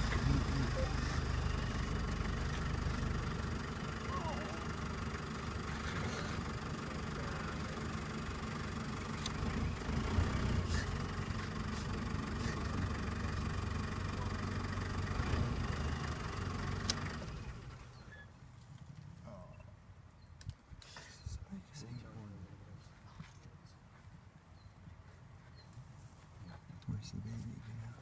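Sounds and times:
car engine idling: 0:00.0 - 0:18.2.

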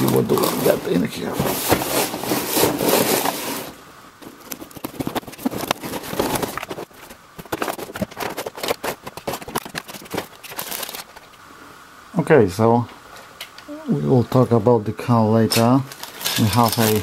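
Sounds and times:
cardboard box opening: 0:00.0 - 0:11.1
plastic packaging clicks and crackles: 0:04.2 - 0:11.4, 0:15.5 - 0:17.0.

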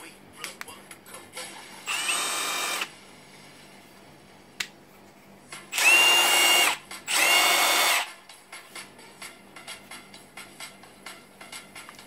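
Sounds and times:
impact wrench motor whine: 0:01.8 - 0:02.9, 0:05.7 - 0:08.1.

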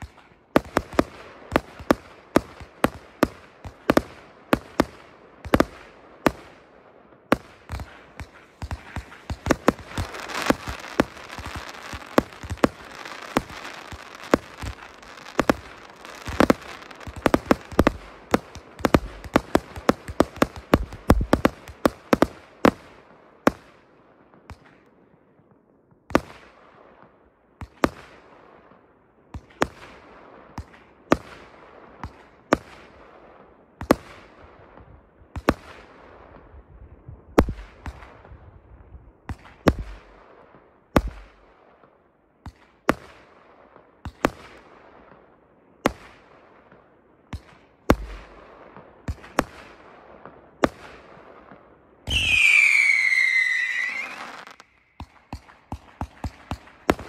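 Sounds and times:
firework bangs with crackle: 0:00.0 - 0:06.6, 0:07.3 - 0:23.7, 0:37.3 - 0:38.4, 0:39.3 - 0:57.0
loud firework whistle: 0:52.1 - 0:55.0.

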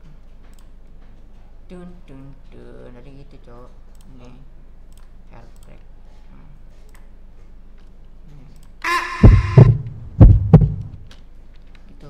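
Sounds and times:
high ringing tone: 0:08.8 - 0:09.8
heartbeat thumps: 0:08.9 - 0:11.1.

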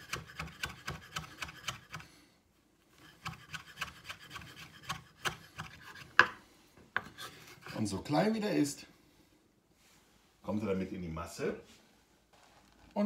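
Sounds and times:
knife chopping on wooden board: 0:00.0 - 0:02.0, 0:04.8 - 0:06.4.

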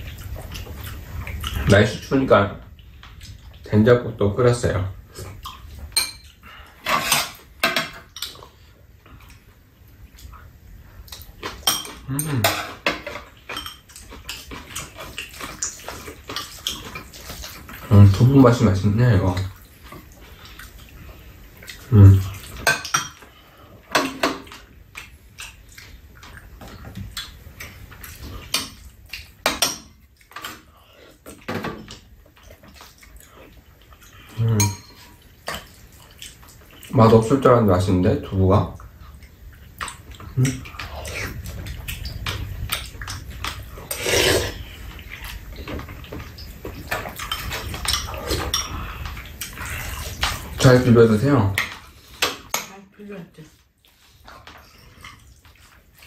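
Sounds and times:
soft eating sounds: 0:00.0 - 0:56.0
spoons clinking against ceramic bowls: 0:05.9 - 0:06.3, 0:11.6 - 0:13.9, 0:34.6 - 0:35.1
spoons clinking on ceramic bowls: 0:34.6 - 0:35.1.

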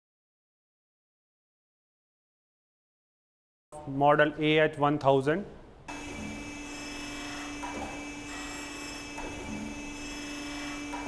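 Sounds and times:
surface grinder humming with whine: 0:05.9 - 0:11.0.

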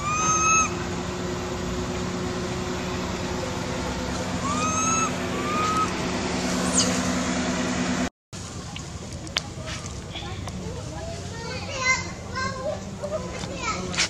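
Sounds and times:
motor humming: 0:00.0 - 0:08.1
short whistled calls: 0:04.4 - 0:05.9.

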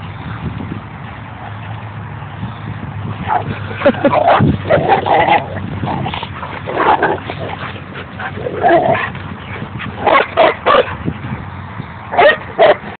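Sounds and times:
dog barking: 0:10.1 - 0:11.0, 0:12.2 - 0:12.8.

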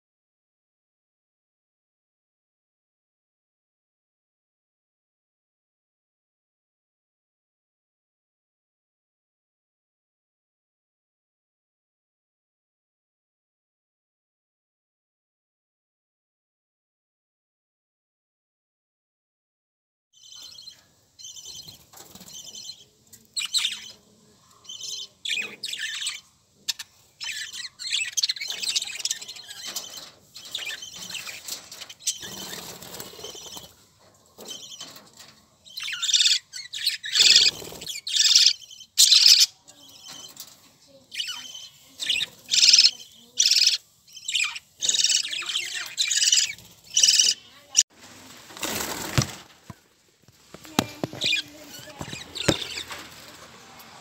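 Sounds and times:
budgerigars chirping: 0:20.2 - 0:33.7, 0:35.7 - 0:40.4, 0:41.2 - 0:47.8, 0:51.1 - 0:53.0.

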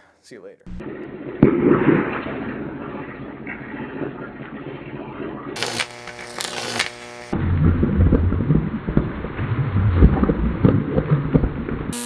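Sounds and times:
loud electrical buzz: 0:05.6 - 0:07.4
electrical arc crack: 0:05.6 - 0:07.6
electrical crackling and sizzling: 0:05.6 - 0:10.3.

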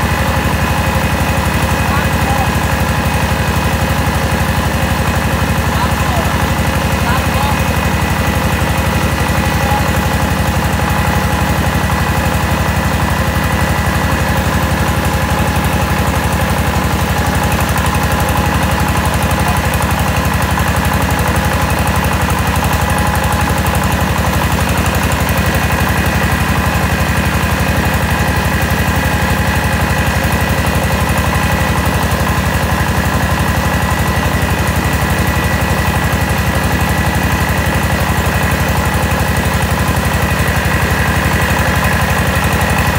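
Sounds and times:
engine drone: 0:00.0 - 0:42.9.

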